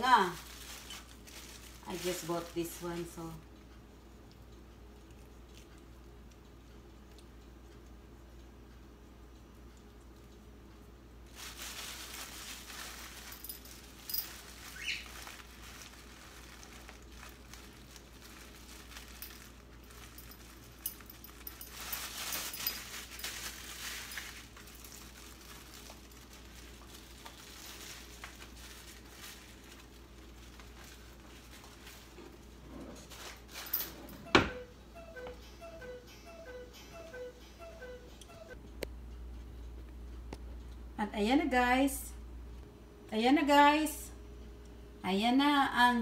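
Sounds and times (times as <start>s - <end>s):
faint low hum: 0.0s - 46.0s
seeds pattering on plate: 22.0s - 31.9s.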